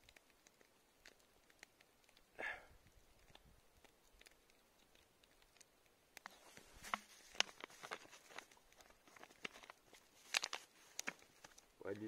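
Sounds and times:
plastic bag rustling: 0:06.3 - 0:11.7.

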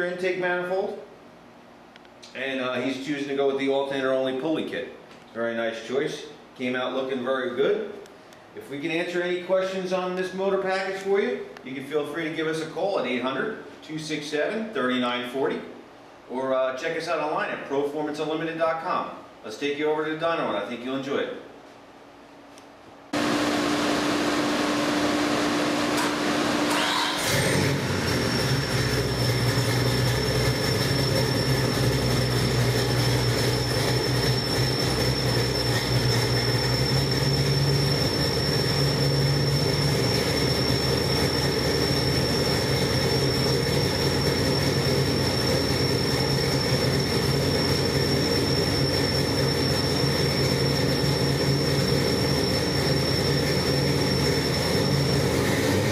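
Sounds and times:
loud mechanical noise: 0:23.2 - 0:55.9
engine idling fast: 0:26.7 - 0:55.9
thin high whine: 0:28.0 - 0:55.9.

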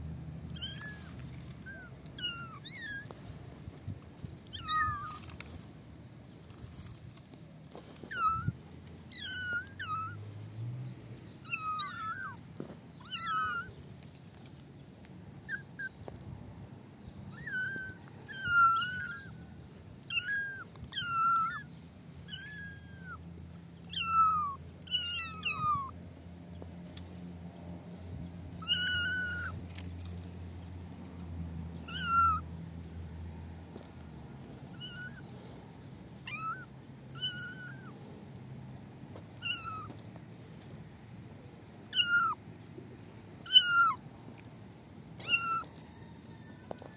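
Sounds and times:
kittens meowing: 0:00.5 - 0:03.2, 0:04.4 - 0:05.4, 0:07.7 - 0:10.2, 0:11.4 - 0:12.4, 0:13.0 - 0:13.9, 0:15.4 - 0:16.2, 0:17.2 - 0:26.0, 0:28.5 - 0:30.2, 0:31.8 - 0:32.5, 0:34.7 - 0:38.2, 0:39.2 - 0:40.1, 0:41.8 - 0:42.4, 0:43.4 - 0:44.1, 0:45.2 - 0:45.8.

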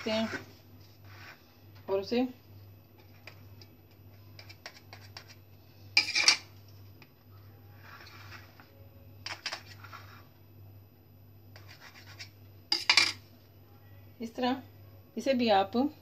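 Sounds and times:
knife scraping steel plate: 0:06.0 - 0:06.4.

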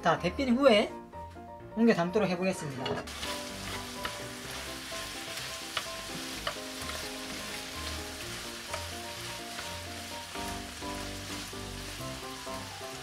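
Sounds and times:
food sizzling in frying pan: 0:03.1 - 0:13.0.

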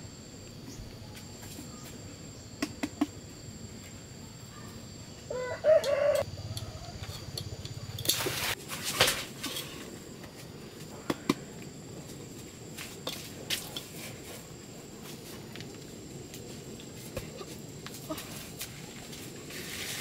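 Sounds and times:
high insect trill: 0:00.0 - 0:20.0
rustling of leaves: 0:12.2 - 0:20.0.

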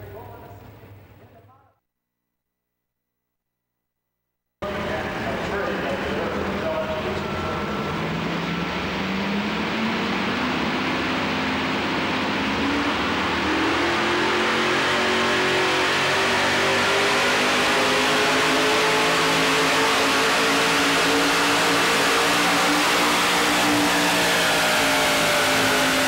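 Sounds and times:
truck engine revving under load: 0:05.8 - 0:26.0.

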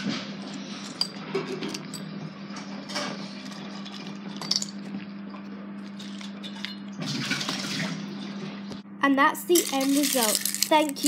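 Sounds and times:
steady low hum: 0:00.0 - 0:11.0
ice clinking into a cup: 0:09.6 - 0:11.0.

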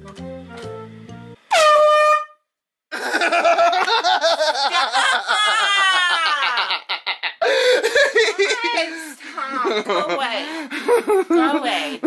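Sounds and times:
air horn blast: 0:01.4 - 0:02.4
woman crying out: 0:08.0 - 0:09.1.

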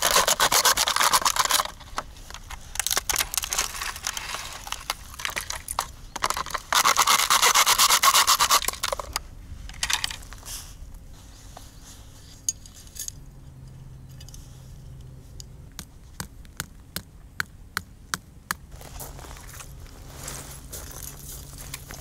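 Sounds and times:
camping gear clinks and knocks: 0:08.5 - 0:10.4.

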